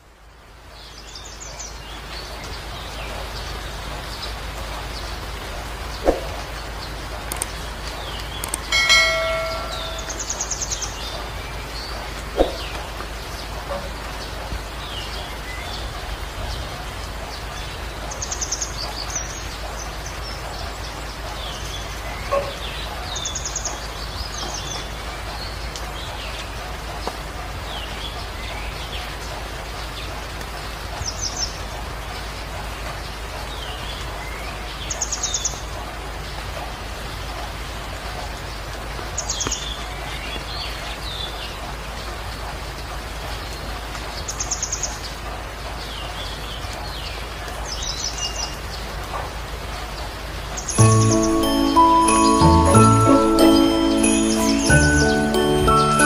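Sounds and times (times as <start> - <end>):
steady rain: 0.0 - 56.0
birds chirping: 0.9 - 15.9, 50.6 - 56.0.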